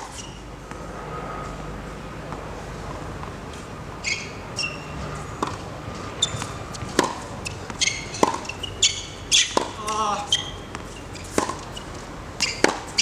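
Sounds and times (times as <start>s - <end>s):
shoe squeaks on court: 0.0s - 0.4s, 4.0s - 5.2s, 6.1s - 13.0s
tennis ball hit and bouncing: 2.3s - 13.0s.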